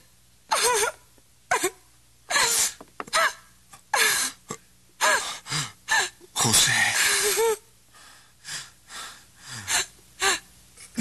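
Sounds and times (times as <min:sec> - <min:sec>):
person crying and gasping: 0:00.5 - 0:04.4, 0:05.0 - 0:06.3, 0:06.9 - 0:07.7, 0:08.5 - 0:11.0.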